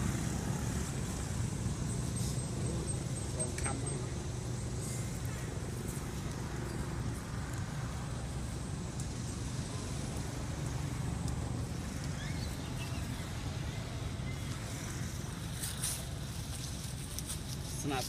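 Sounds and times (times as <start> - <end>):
engine running low rumble: 0.0 - 18.0.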